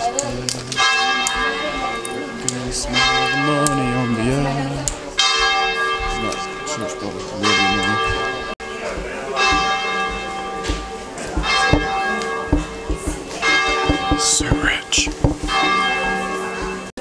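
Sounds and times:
church bells ringing: 0.7s - 4.3s, 5.2s - 17.0s
man singing: 2.5s - 4.8s, 13.9s - 15.4s.

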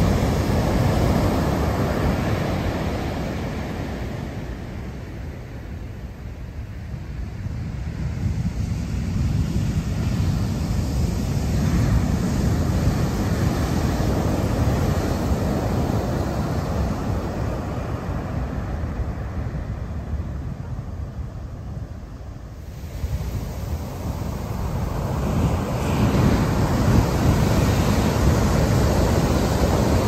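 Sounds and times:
waves crashing on beach: 0.0s - 30.0s
wind rumbling on microphone: 0.0s - 30.0s.

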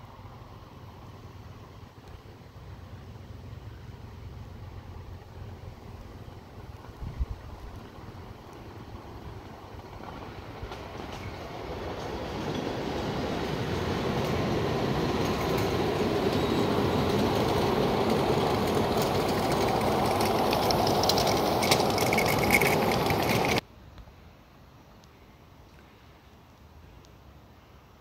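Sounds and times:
miniature steam train rumbling: 0.0s - 23.6s
faint outdoor background: 0.0s - 28.0s
wheels clicking over rails: 5.6s - 23.6s
high squeal: 12.5s - 23.6s.

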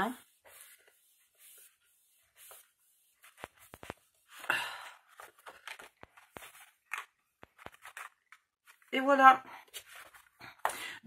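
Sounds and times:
paper rustling: 0.4s - 8.9s, 9.7s - 10.6s
light taps and clicks on paper: 3.3s - 4.1s.

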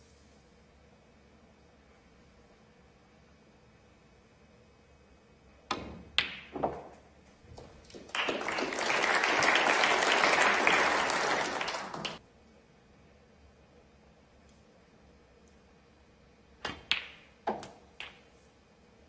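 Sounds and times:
ball knocking into pocket: 5.7s - 7.0s
snooker balls clicking: 5.7s - 8.4s, 16.6s - 18.4s
audience applauding: 7.8s - 12.2s.

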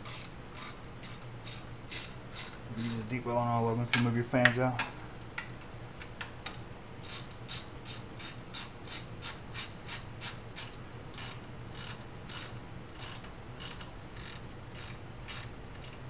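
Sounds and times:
hand ratchet clicking: 0.0s - 3.1s, 6.4s - 16.0s.

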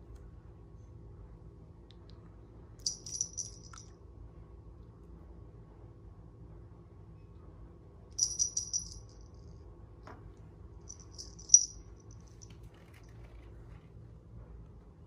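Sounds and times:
small high-pitched rattle jingling: 2.8s - 3.9s, 8.2s - 9.5s, 10.9s - 13.2s.

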